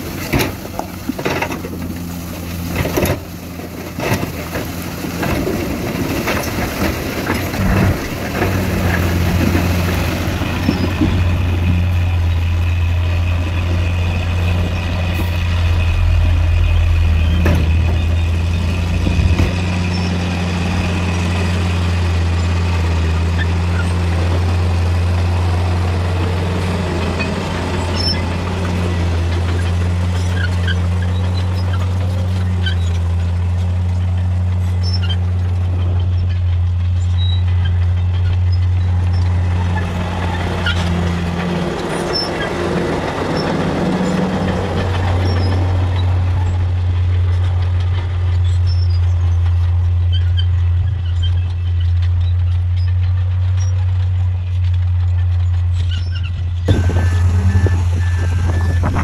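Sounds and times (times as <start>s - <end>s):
heavy diesel engines running: 0.0s - 59.0s
broad rushing noise: 7.5s - 21.3s.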